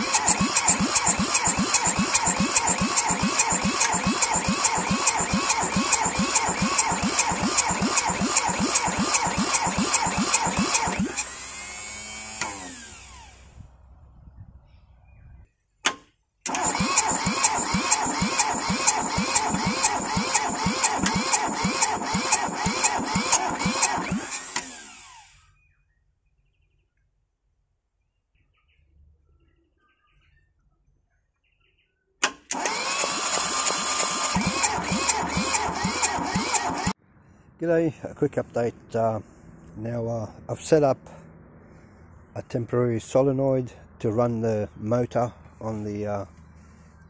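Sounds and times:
starter motor cranking diesel engine: 0.0 - 13.5, 16.5 - 25.4, 32.5 - 37.0
faint bird chirps: 14.2 - 15.8, 25.4 - 27.2, 27.9 - 32.2
sharp clunk: 15.8 - 16.2.

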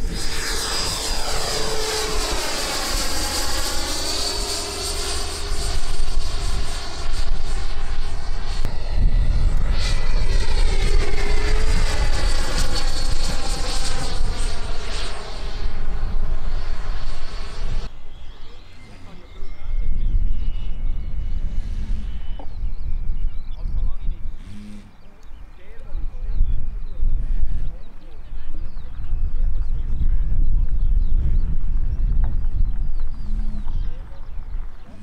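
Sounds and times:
model airplane motor whining: 0.0 - 22.7.

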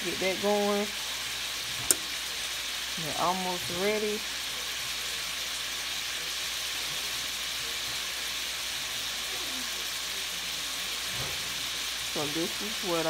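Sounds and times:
food sizzling in a frying pan: 0.0 - 13.0.

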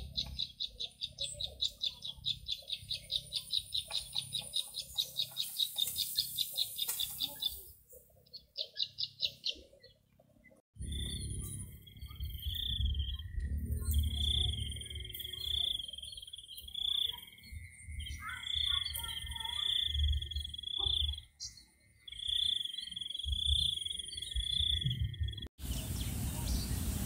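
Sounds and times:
low rumble: 10.8 - 15.3
fainter lower insect trill: 10.8 - 25.5.

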